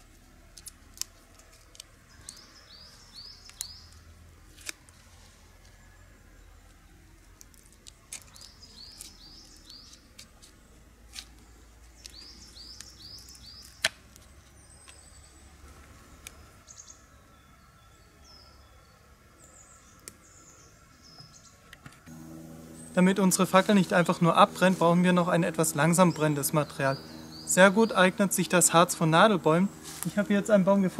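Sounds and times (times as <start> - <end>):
small bird singing: 0.0 - 4.2, 5.2 - 30.9
bark tearing: 0.5 - 2.5, 4.5 - 5.0, 7.2 - 11.4
knife scraping bark: 29.8 - 30.2.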